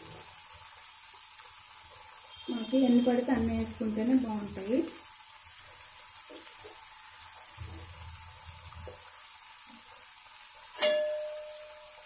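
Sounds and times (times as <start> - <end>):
crackers deep-frying in oil: 0.0 - 12.0
metal utensil clinking on pan: 10.7 - 11.9.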